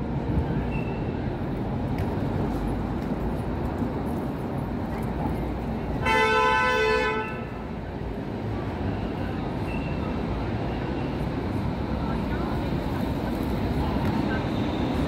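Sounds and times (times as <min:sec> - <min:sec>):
city street noise: 0:00.0 - 0:15.0
vehicle horn blast: 0:06.0 - 0:07.5.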